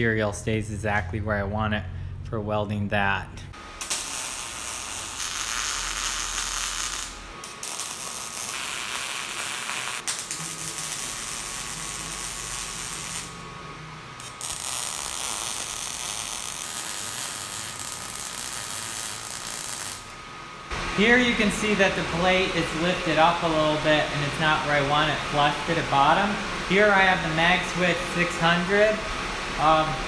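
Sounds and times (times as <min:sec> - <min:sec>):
welding arc crackling: 0:03.8 - 0:13.5, 0:14.2 - 0:29.0.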